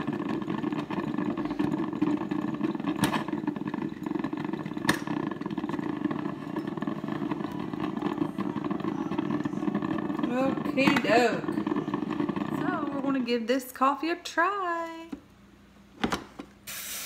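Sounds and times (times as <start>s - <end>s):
coffee maker gurgling: 0.0s - 13.5s.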